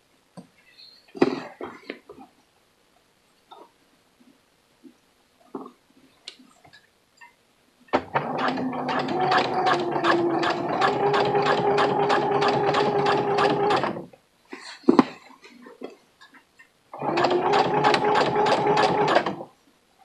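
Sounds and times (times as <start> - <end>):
sewing machine stitching: 8.0 - 14.1, 17.0 - 19.5.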